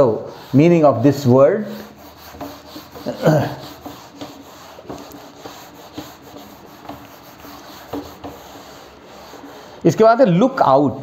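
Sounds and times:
duster wiping whiteboard: 0.0s - 11.0s.

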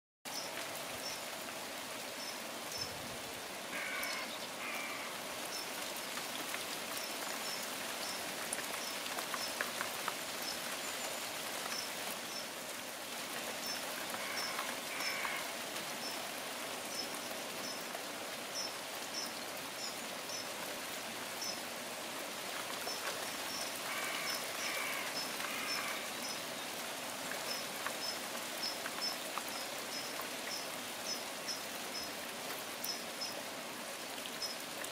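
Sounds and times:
steady rain: 0.3s - 34.9s.

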